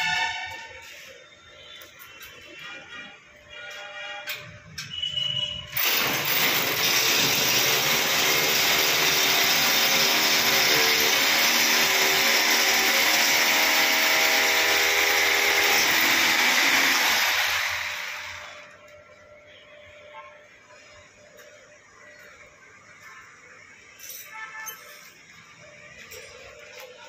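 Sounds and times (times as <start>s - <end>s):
angle grinder cutting steel: 5.8s - 18.4s.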